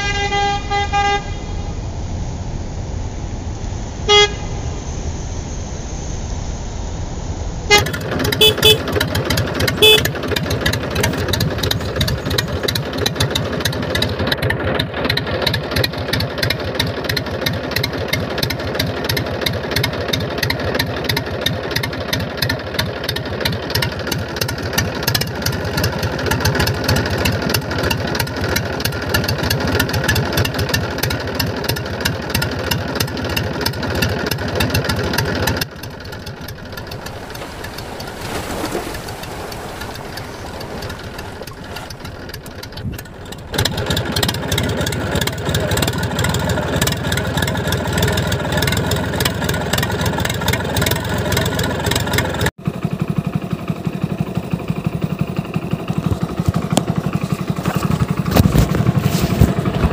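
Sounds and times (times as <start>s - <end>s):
short horn toots: 0.0s - 1.8s, 4.1s - 4.6s, 7.7s - 9.0s, 9.7s - 10.3s
tractor diesel engine running: 7.7s - 59.9s.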